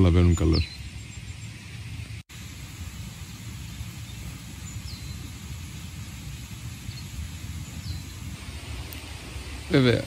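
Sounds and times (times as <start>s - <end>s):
faint bird chirps: 0.0s - 2.2s, 2.9s - 8.4s
wind rumbling on microphone: 0.0s - 10.0s.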